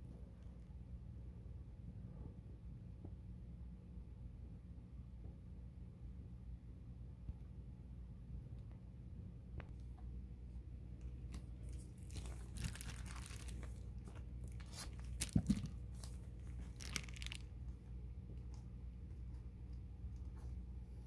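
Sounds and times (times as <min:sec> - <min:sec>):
foil insulation crinkling: 0:11.4 - 0:17.6
foil tape tearing off roll: 0:11.8 - 0:13.8, 0:14.5 - 0:17.4.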